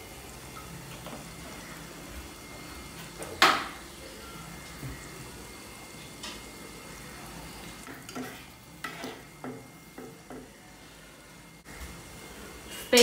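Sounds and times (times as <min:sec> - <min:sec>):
food sizzling in a pan: 0:00.0 - 0:13.0
utensil scraping a pan: 0:07.9 - 0:09.6.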